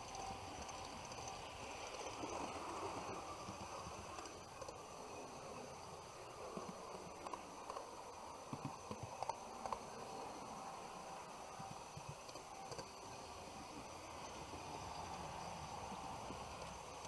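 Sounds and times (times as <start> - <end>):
model train buzz: 0.0 - 17.0.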